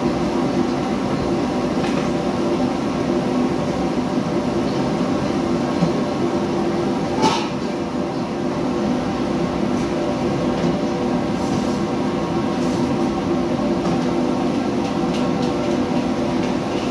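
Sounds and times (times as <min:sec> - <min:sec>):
extraction fan hum: 0:00.0 - 0:16.9.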